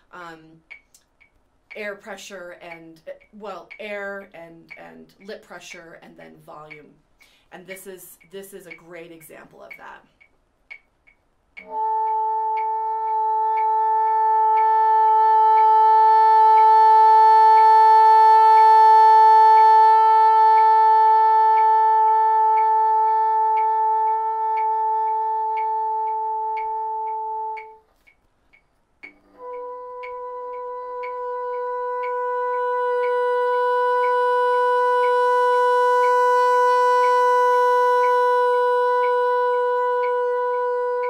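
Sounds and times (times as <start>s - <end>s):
faint steady click: 0.0s - 15.8s, 21.5s - 32.2s, 39.0s - 41.0s
bassoon sustained high note: 11.6s - 27.8s, 29.1s - 41.0s.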